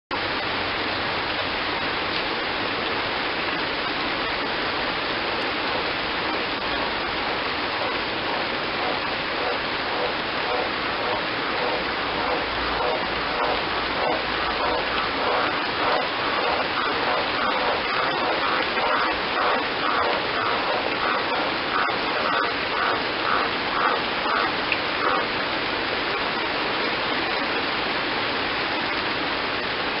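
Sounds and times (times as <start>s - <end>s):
heavy rain on leaves and gravel: 0.1s - 30.0s
frog croaking: 6.6s - 25.3s.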